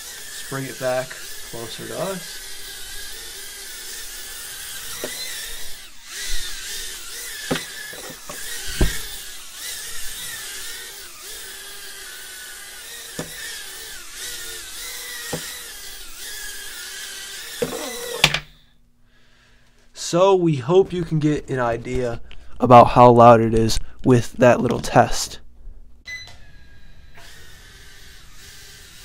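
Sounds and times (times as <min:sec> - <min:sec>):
quadcopter motors whining: 0:00.0 - 0:18.8, 0:26.1 - 0:29.0.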